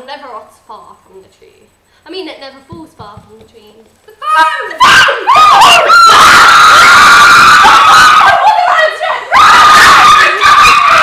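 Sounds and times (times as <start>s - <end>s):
girls screaming: 4.2s - 11.0s.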